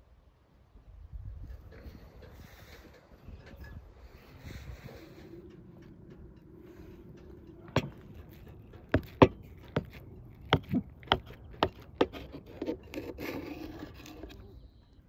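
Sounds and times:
knife scraping: 0:09.0 - 0:14.5.

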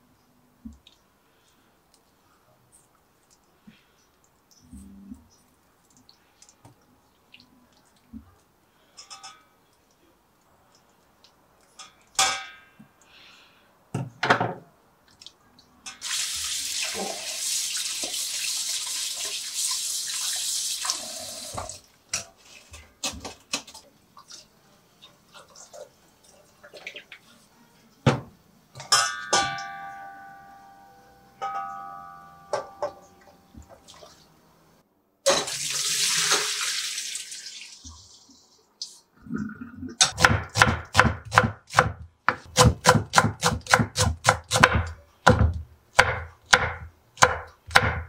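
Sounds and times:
kitchen tap running: 0:16.0 - 0:21.8, 0:35.3 - 0:38.1.

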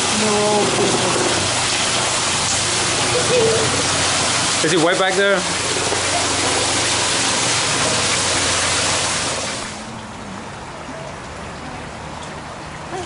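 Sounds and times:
waterfall splashing into pool: 0:00.0 - 0:10.1.

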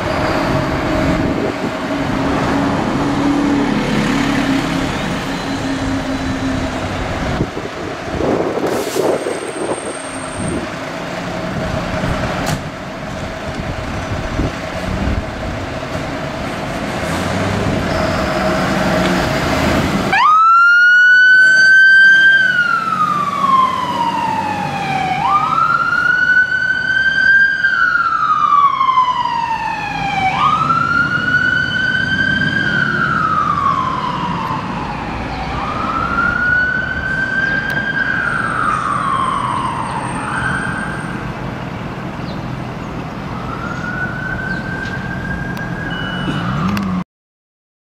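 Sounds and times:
diesel engine pulling away: 0:00.0 - 0:20.2, 0:20.8 - 0:47.0
siren wailing: 0:20.1 - 0:41.2, 0:43.3 - 0:47.0.

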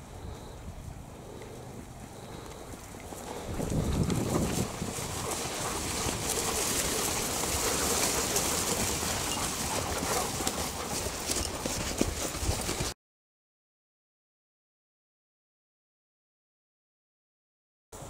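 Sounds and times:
horse hoofbeats: 0:00.0 - 0:13.0
hounds running through grass: 0:00.0 - 0:13.0
rustling and rumbling noise: 0:00.0 - 0:13.0
hounds crying: 0:01.2 - 0:12.2.

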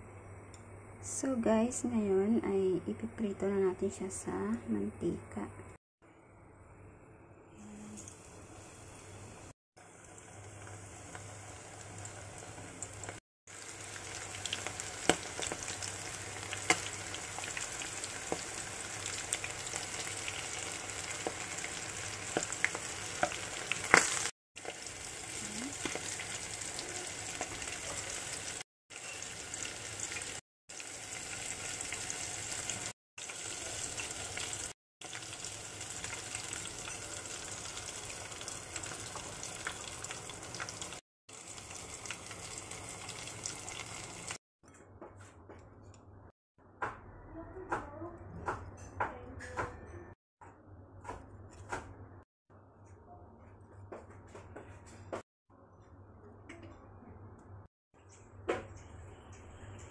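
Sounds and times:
food deep-frying in oil: 0:07.9 - 0:44.4.

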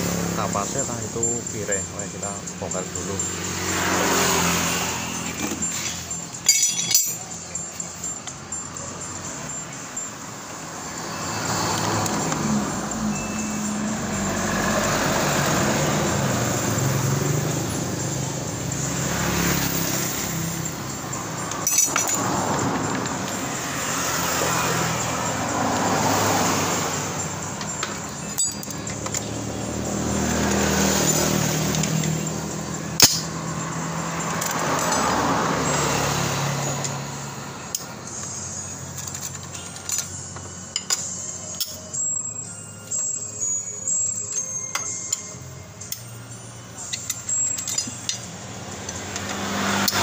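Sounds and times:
motor vehicles passing: 0:00.0 - 0:50.0
screwdriver clinking on screws: 0:05.2 - 0:08.5, 0:21.4 - 0:23.5, 0:27.6 - 0:29.4, 0:46.8 - 0:50.0.

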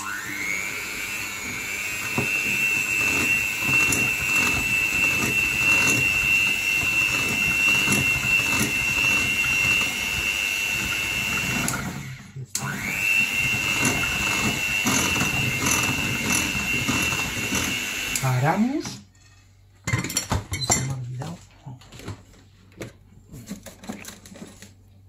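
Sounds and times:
electric hand mixer whining: 0:00.0 - 0:18.7.

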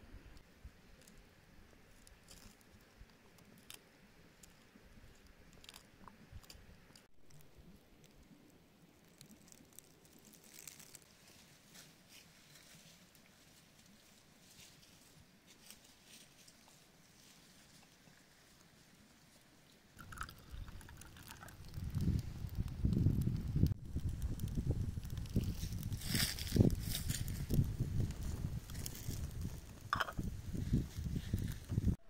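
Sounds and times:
faint outdoor hiss: 0:00.0 - 0:32.0
small clicks and crunches: 0:02.0 - 0:03.8, 0:04.4 - 0:08.3, 0:08.9 - 0:11.8, 0:20.0 - 0:31.9.

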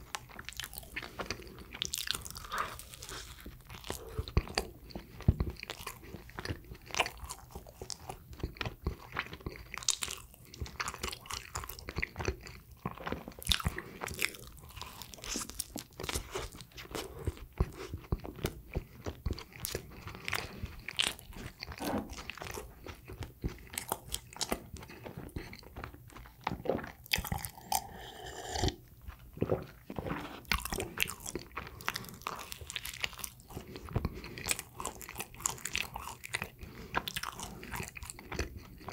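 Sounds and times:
person chewing bread: 0:00.0 - 0:38.9.

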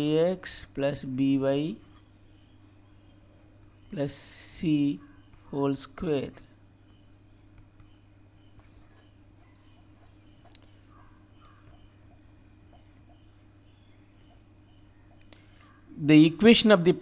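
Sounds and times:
faint ticks: 0:09.9 - 0:10.8.

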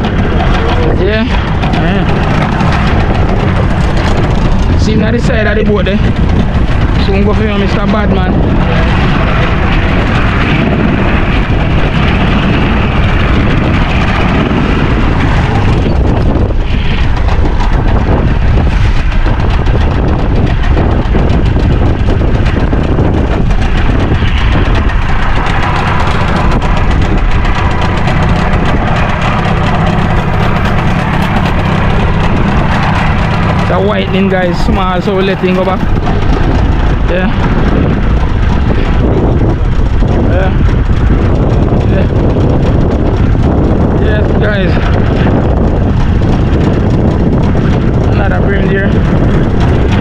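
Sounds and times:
outboard motor running: 0:00.0 - 0:50.0
wind buffeting microphone: 0:00.0 - 0:50.0.

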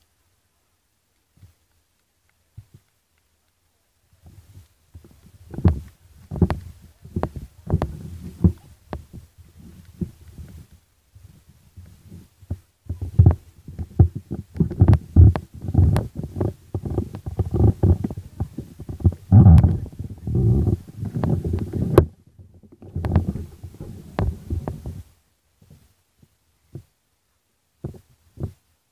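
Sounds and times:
wind buffeting microphone: 0:04.3 - 0:25.1.

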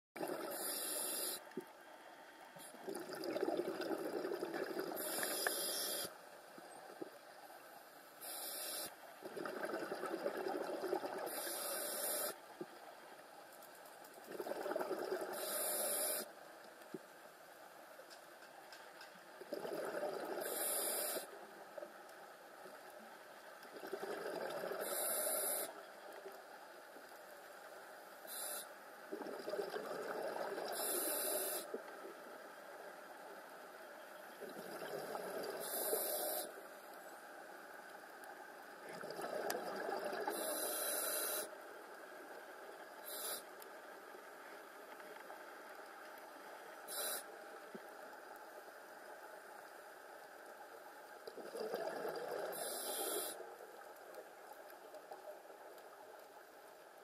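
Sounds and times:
exhaled bubbles rushing: 0:02.8 - 0:05.0, 0:09.2 - 0:11.3, 0:19.5 - 0:20.4, 0:23.7 - 0:24.8, 0:38.8 - 0:40.3, 0:51.3 - 0:52.6
diver breathing through regulator: 0:40.3 - 0:41.5.

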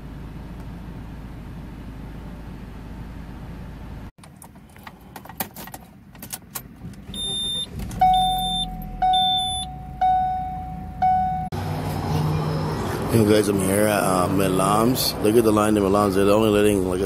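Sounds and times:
dashboard warning chime: 0:07.1 - 0:11.6.

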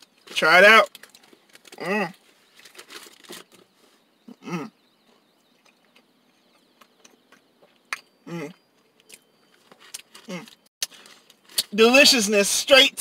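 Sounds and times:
man humming mm: 0:04.3 - 0:04.8
man chewing: 0:05.0 - 0:11.6.

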